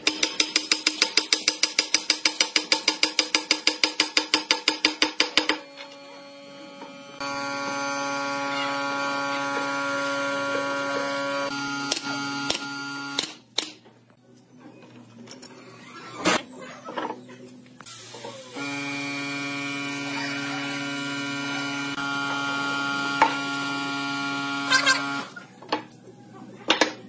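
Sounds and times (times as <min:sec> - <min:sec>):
power drill running: 0:05.8 - 0:13.2, 0:18.5 - 0:25.3.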